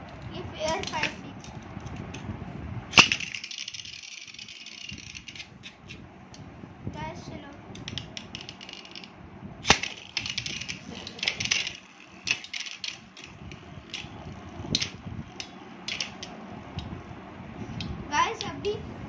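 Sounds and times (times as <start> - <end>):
spinning tops clicking and clacking: 0.1 - 2.0, 2.9 - 6.0, 7.8 - 16.4.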